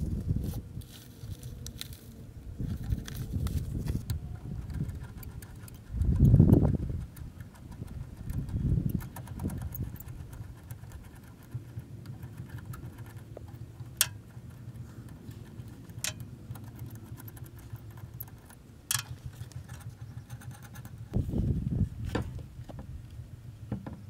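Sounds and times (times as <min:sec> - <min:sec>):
low uneven rumble: 0:00.0 - 0:24.0
small metallic clicks: 0:04.0 - 0:21.0.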